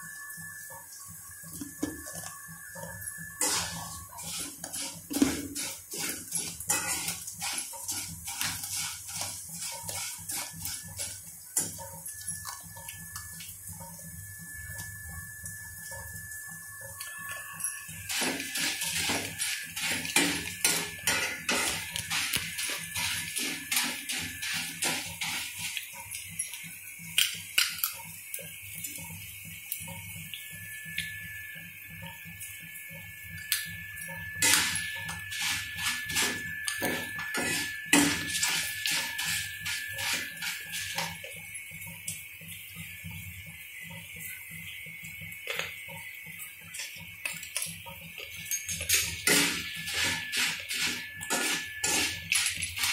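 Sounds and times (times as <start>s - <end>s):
faint steady high tone: 0.0s - 5.5s, 11.6s - 25.0s, 29.9s - 52.4s
corn sizzling in hot oil: 0.0s - 52.9s
stirring scraping in a pan: 3.0s - 13.1s, 17.2s - 26.1s, 34.4s - 41.4s, 49.0s - 52.9s.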